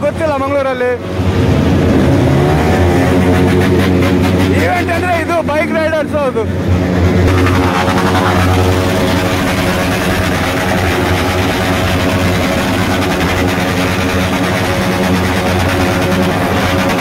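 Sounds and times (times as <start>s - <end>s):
motorcycle engine at high revs: 1.1s - 5.8s, 6.6s - 17.0s.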